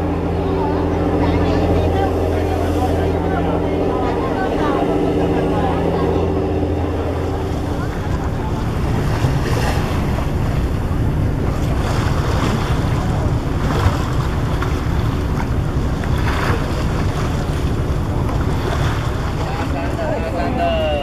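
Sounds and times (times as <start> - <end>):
boat engine rumbling: 0.0 - 21.0
rushing water: 0.0 - 21.0.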